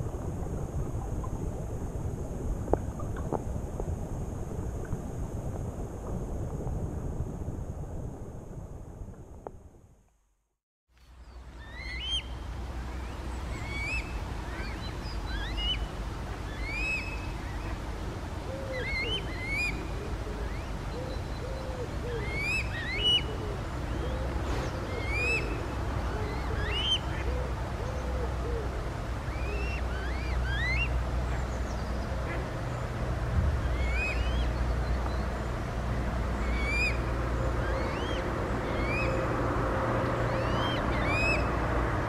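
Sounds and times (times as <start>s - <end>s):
steady low rumble: 0.0s - 10.0s, 31.0s - 42.0s
birds singing whistled phrases: 11.6s - 12.4s, 24.0s - 25.6s, 33.6s - 35.3s, 36.4s - 37.0s, 37.6s - 39.3s, 40.3s - 41.5s.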